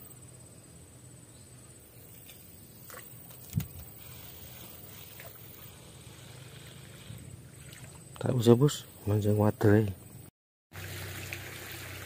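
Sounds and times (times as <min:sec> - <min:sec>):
fishing rod handling noise: 0:02.0 - 0:04.0.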